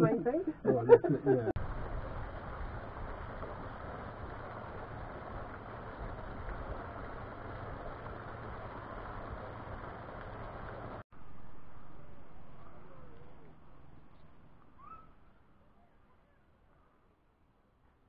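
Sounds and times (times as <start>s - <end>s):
waterfall splashing into pond: 1.6s - 11.0s.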